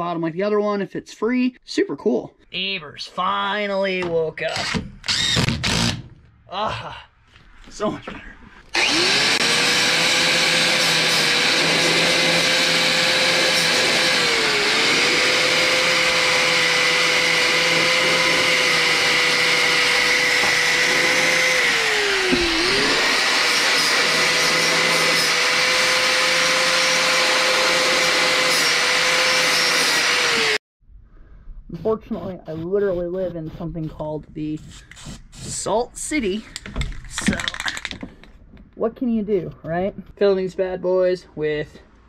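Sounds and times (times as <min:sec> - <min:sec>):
angle grinder grinding steel: 0:08.7 - 0:30.6.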